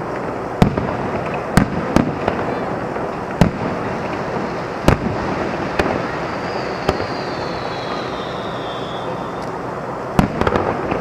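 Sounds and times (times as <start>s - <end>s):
background noise: 0.0s - 11.0s
fireworks bangs: 0.0s - 11.0s
faint falling whistle: 6.0s - 9.5s.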